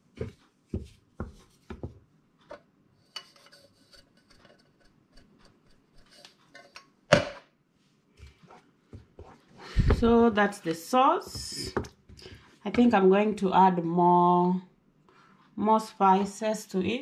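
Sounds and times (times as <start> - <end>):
wooden spatula scraping a pan: 3.0 - 6.8.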